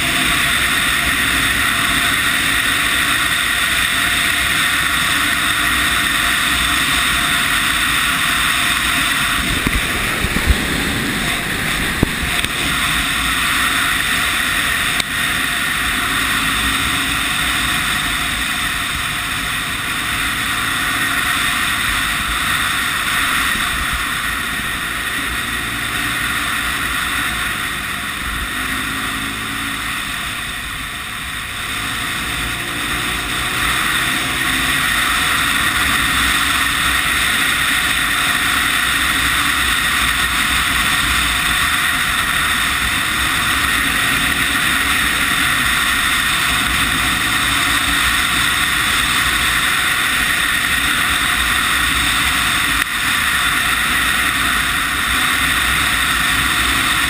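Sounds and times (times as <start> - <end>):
motorcycle engine running: 0.0 - 57.0
wind rushing over microphone: 7.1 - 30.6.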